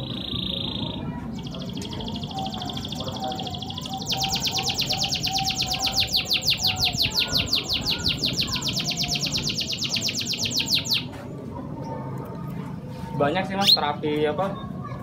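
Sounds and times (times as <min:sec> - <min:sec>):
canary trilling: 0:00.0 - 0:11.2, 0:13.4 - 0:14.0.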